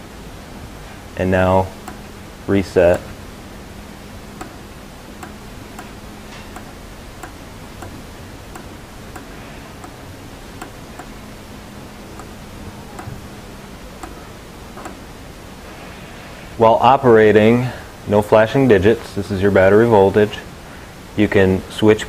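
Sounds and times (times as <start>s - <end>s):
push button clicking: 5.2s - 10.0s, 10.6s - 11.2s, 14.0s - 15.1s.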